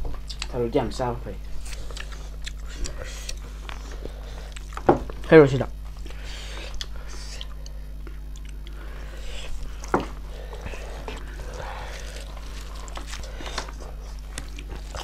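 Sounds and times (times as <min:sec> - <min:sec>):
low electrical hum: 0:00.0 - 0:15.0
chewing and mouth noises: 0:00.1 - 0:00.6, 0:01.5 - 0:04.9, 0:05.8 - 0:15.0.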